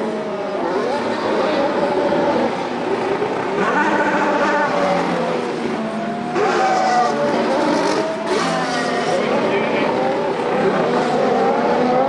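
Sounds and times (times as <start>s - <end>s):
race car engines revving: 0.0s - 12.0s.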